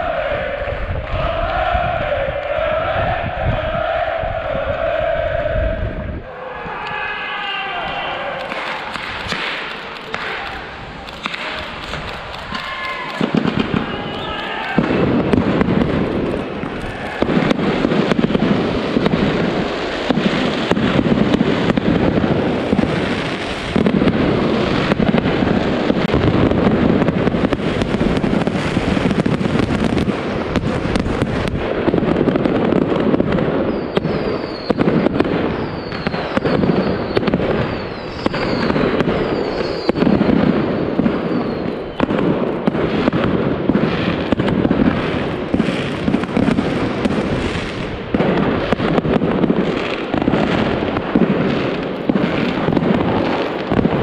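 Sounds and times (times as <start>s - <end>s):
fireworks bangs and crackling: 7.2s - 54.0s
falling firework whistles: 7.9s - 26.7s, 27.3s - 43.3s.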